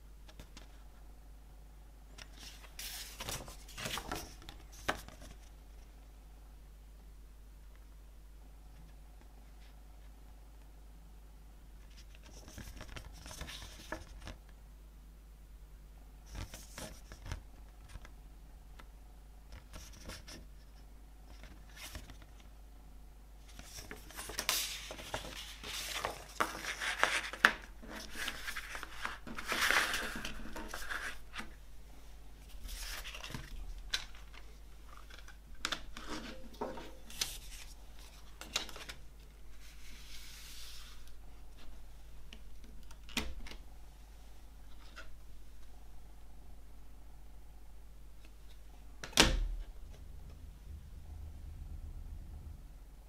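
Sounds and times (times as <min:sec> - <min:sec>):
steady low hum: 0:00.0 - 0:53.0
paper booklet rustling: 0:02.2 - 0:05.5, 0:23.5 - 0:31.6, 0:32.4 - 0:41.8.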